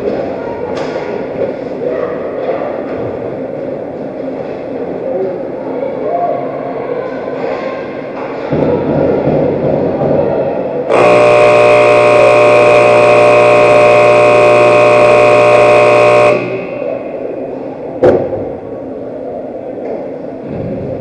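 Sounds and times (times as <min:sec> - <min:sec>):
scoreboard horn blast: 0:10.9 - 0:17.1.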